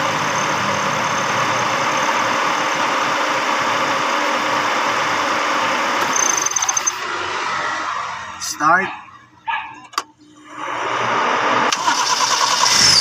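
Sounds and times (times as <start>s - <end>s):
car engine idling: 0.0s - 10.2s.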